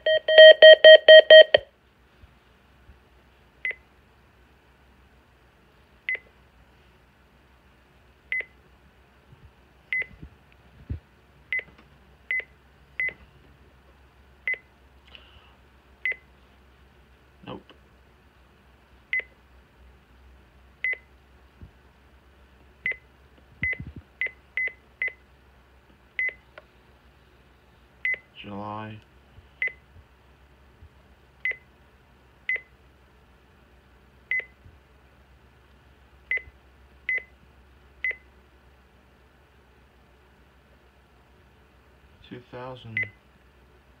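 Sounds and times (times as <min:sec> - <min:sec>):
short high keypad beeps: 0:00.0 - 0:01.6.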